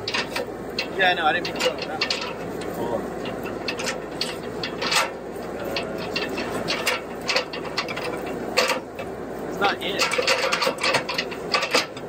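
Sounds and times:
metal ladder clacking: 0:00.0 - 0:12.0.

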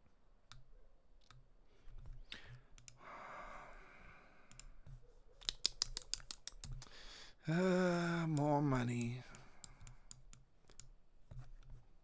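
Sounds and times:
mouse and keyboard clicks: 0:04.5 - 0:06.9, 0:08.3 - 0:11.8.

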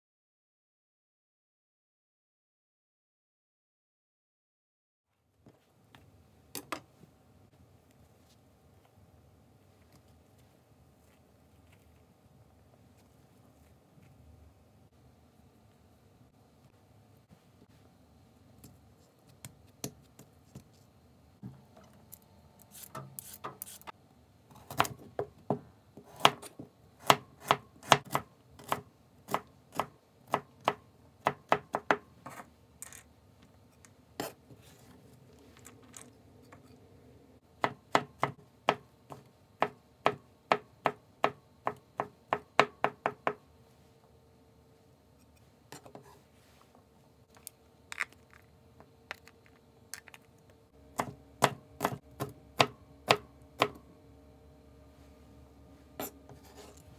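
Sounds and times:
knife chopping on cutting board: 0:51.0 - 0:53.8.

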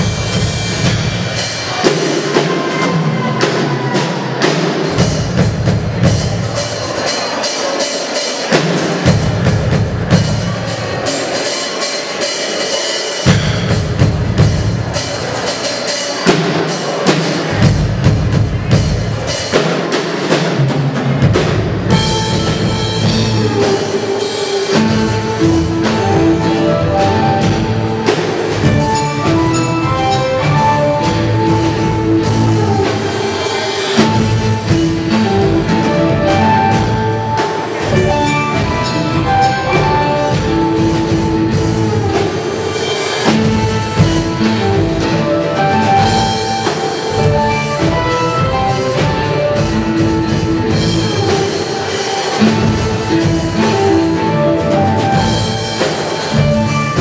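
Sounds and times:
bass guitar: 0:00.0 - 0:01.8, 0:21.2 - 0:57.0
drum kit beat: 0:00.0 - 0:57.0.

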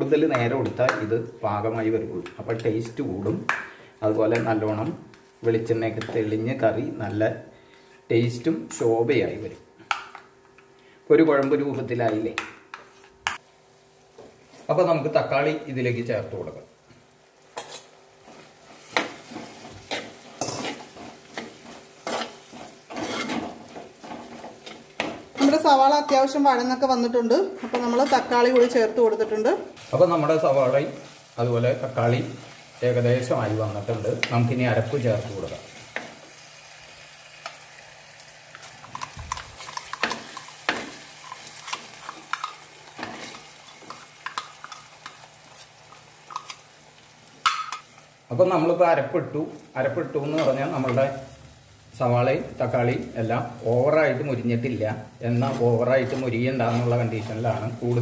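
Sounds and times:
food sizzling in a pot: 0:11.1 - 0:58.0
spoon scraping a pot: 0:18.8 - 0:26.2, 0:38.9 - 0:45.7
spoon scraping clay pot: 0:19.8 - 0:23.5.

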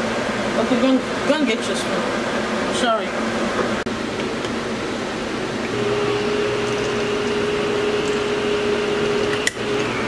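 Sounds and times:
fan-like noise: 0:00.0 - 0:10.0
electric can opener humming: 0:05.4 - 0:10.0.

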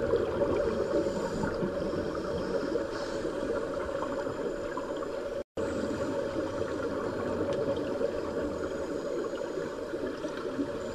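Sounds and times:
muffled underwater rush: 0:00.0 - 0:10.9.

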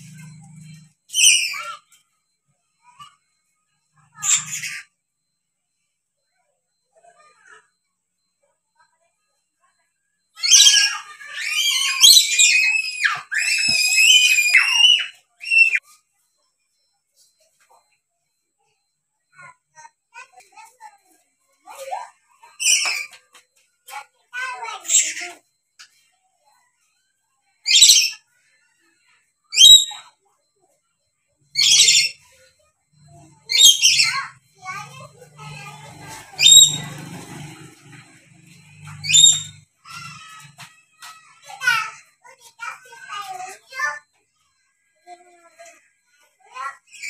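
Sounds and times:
parrot screeching: 0:01.1 - 0:01.8, 0:10.4 - 0:15.8, 0:31.6 - 0:32.2, 0:33.5 - 0:34.3, 0:35.5 - 0:36.8, 0:39.0 - 0:40.3.

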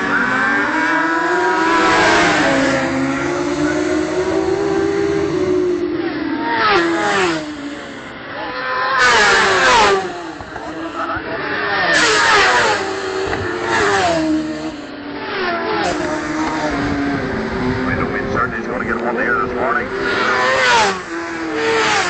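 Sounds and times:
racing motorcycles passing: 0:00.0 - 0:22.0.

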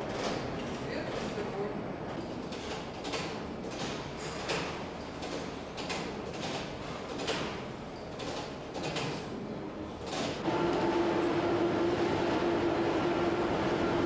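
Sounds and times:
machinery rumble: 0:10.4 - 0:14.0.

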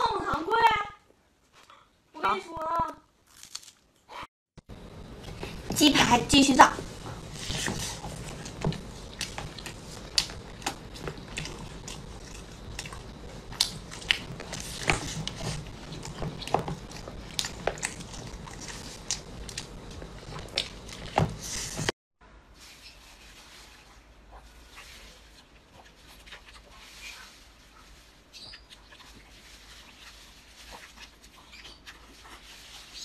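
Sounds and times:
wet chewing: 0:06.7 - 0:21.9.

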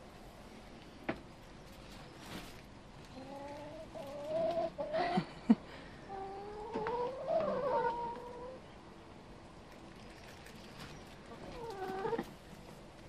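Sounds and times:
hens clucking: 0:03.0 - 0:05.4, 0:06.0 - 0:08.7, 0:11.3 - 0:12.5.

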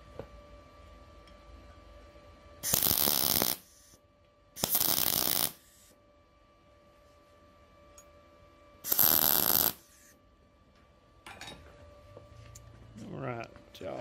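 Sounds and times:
welding arc crackling bursts: 0:02.6 - 0:04.0, 0:04.6 - 0:05.9, 0:08.8 - 0:10.1
welding arc hiss: 0:02.6 - 0:04.0, 0:04.6 - 0:06.0, 0:08.8 - 0:10.2.

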